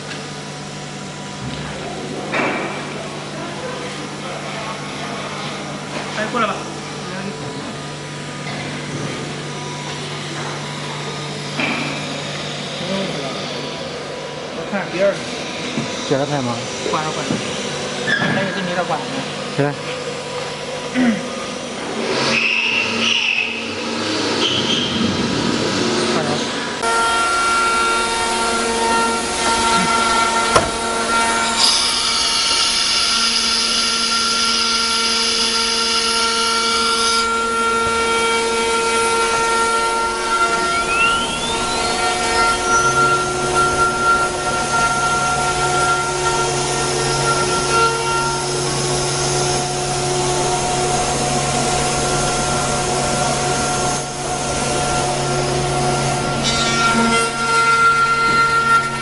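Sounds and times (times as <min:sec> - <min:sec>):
harsh wood cutting noise: 0:04.1 - 0:59.0
electric spindle whine: 0:25.5 - 0:59.0.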